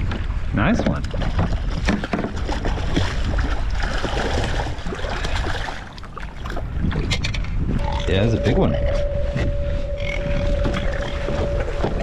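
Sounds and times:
fish splashing in water: 0:01.1 - 0:07.2.

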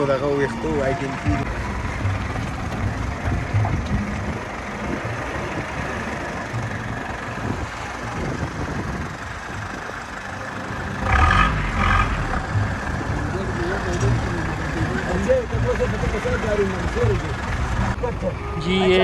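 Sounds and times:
vehicle engine on rough track: 0:00.0 - 0:19.0
car horn toots: 0:18.1 - 0:19.0.

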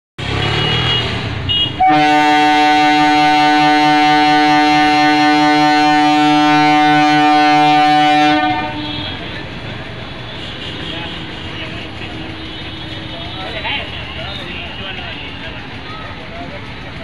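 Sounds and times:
train horn blast: 0:00.3 - 0:09.3
train rolling with low rumble: 0:01.8 - 0:17.0.

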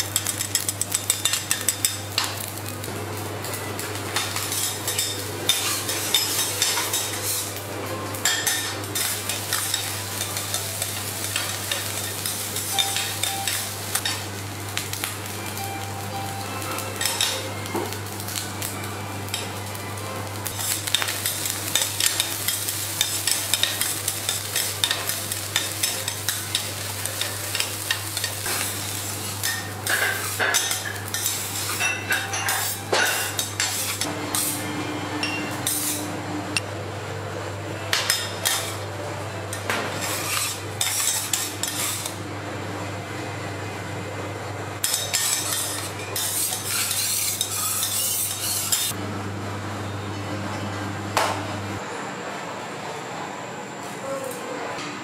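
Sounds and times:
food sizzling: 0:00.0 - 0:34.7, 0:44.8 - 0:49.0
metal spatulas scraping griddle: 0:04.2 - 0:07.6, 0:21.7 - 0:34.6, 0:35.4 - 0:36.1, 0:39.7 - 0:42.2, 0:44.8 - 0:49.0.

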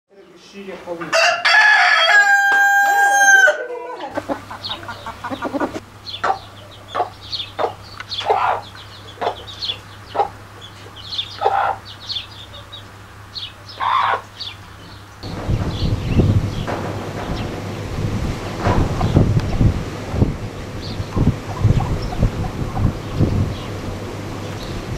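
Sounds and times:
rooster crowing: 0:01.1 - 0:04.4
chickens clucking: 0:03.1 - 0:24.9
steady low hum: 0:04.2 - 0:24.9.

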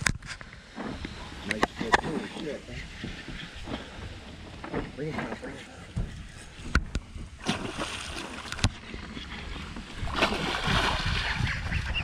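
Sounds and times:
fish thrashing and splashing: 0:07.4 - 0:08.8, 0:10.0 - 0:11.6.

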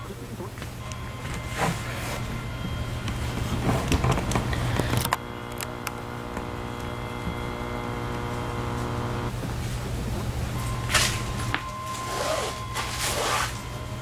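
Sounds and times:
steady multi-pitched drone: 0:00.8 - 0:09.3
low hum: 0:00.8 - 0:14.0.

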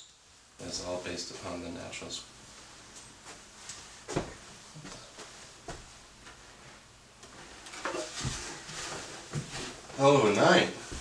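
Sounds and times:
footsteps on floor: 0:02.9 - 0:06.5, 0:07.2 - 0:10.0, 0:10.8 - 0:11.0
chair being handled: 0:07.6 - 0:09.8.

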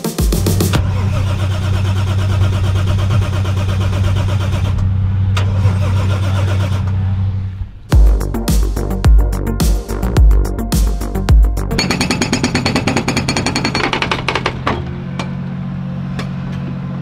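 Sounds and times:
vehicle engine idling: 0:00.5 - 0:08.0.

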